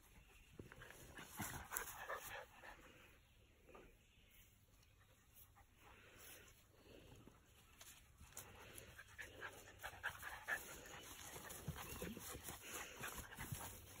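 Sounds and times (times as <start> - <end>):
puppies panting: 0.0 - 3.2, 8.2 - 14.0.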